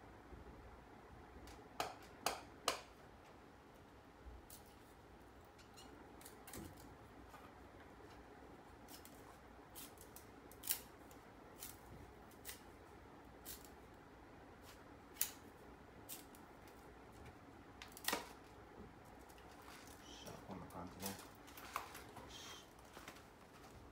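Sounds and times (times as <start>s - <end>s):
bamboo splitting cracks: 9.8s - 12.7s, 15.1s - 15.4s, 17.8s - 18.5s.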